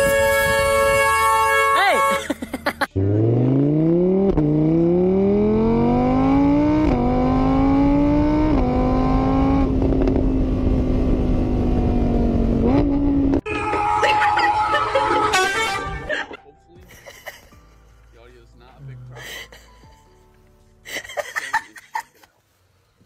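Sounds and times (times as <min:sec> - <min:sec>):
car engine accelerating: 0:02.9 - 0:13.4.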